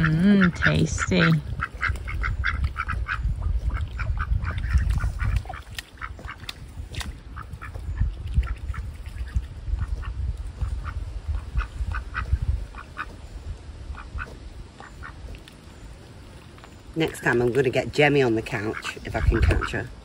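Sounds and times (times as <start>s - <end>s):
ducks quacking softly: 0.0s - 6.6s, 7.3s - 13.3s, 13.9s - 15.4s
ducks dabbling in mud: 0.0s - 20.0s.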